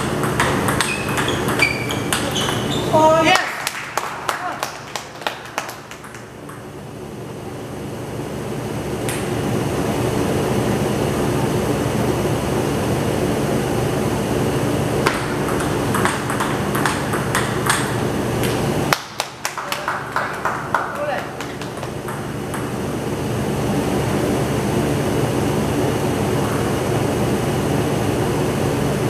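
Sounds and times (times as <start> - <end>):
ping-pong ball clicking off paddles: 0.0 - 2.7, 15.0 - 18.6
steady hum: 0.0 - 29.0.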